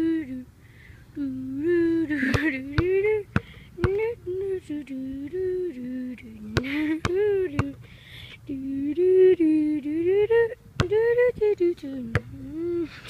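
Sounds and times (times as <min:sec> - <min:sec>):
person humming: 0:00.0 - 0:00.5, 0:01.2 - 0:07.8, 0:08.4 - 0:13.0
basketball bouncing on concrete: 0:02.4 - 0:04.0, 0:06.6 - 0:07.8.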